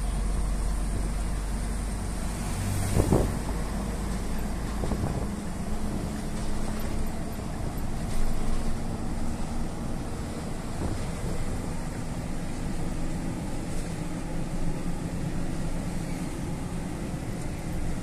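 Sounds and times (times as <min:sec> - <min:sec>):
road noise: 0:00.0 - 0:18.0
truck diesel engine running: 0:00.0 - 0:18.0.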